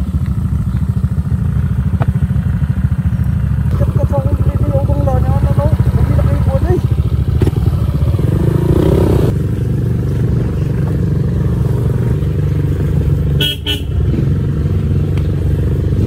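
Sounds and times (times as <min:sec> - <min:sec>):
scooter engine running: 0:00.0 - 0:16.0
horn beeping: 0:13.4 - 0:14.1.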